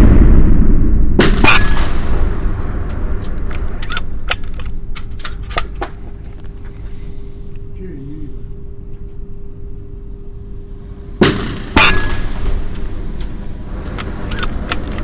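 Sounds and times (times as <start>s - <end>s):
gunshots reverberating indoors: 0.0s - 4.8s
rifle handling clicks and knocks: 3.4s - 6.6s.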